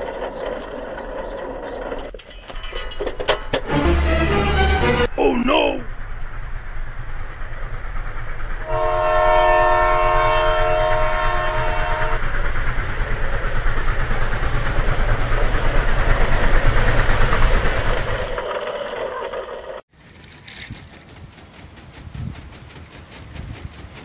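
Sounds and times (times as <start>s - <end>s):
train horn chord: 3.8s - 5.2s, 8.6s - 12.2s
train wheels clickety-clack: 6.2s - 18.5s, 20.1s - 24.0s.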